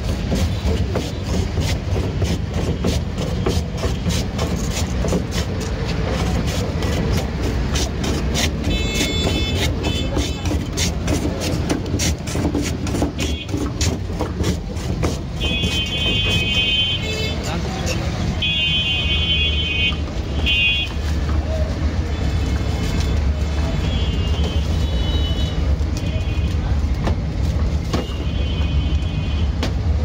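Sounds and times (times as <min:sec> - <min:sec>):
ice block rasping on shaver blade: 0:00.0 - 0:16.6
low street rumble: 0:00.0 - 0:30.0.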